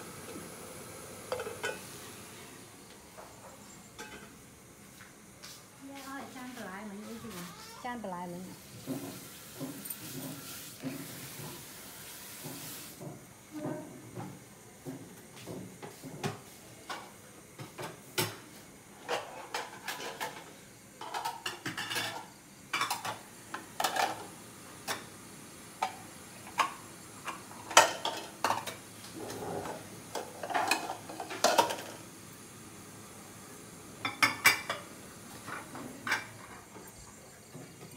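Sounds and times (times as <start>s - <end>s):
pots and utensils clattering: 1.2s - 1.9s, 3.1s - 4.4s, 8.7s - 11.7s, 12.3s - 18.4s, 19.0s - 25.2s, 25.8s - 32.0s, 34.0s - 37.9s.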